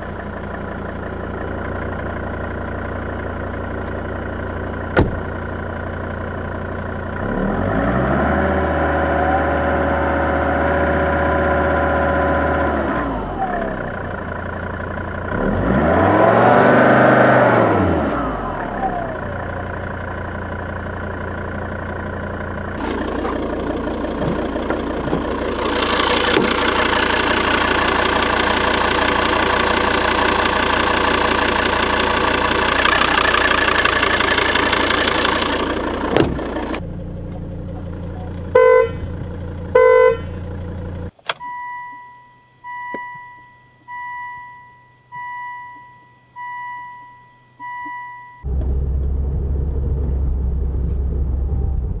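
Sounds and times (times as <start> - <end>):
diesel engine idling and revving: 0.0 - 41.7, 42.6 - 52.0
car warning chime: 37.7 - 40.4, 41.2 - 48.5
car horn honks: 38.2 - 40.5.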